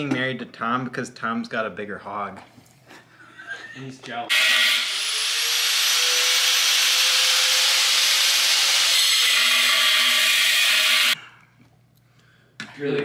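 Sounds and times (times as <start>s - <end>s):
handheld grinder cutting metal: 4.3s - 11.2s.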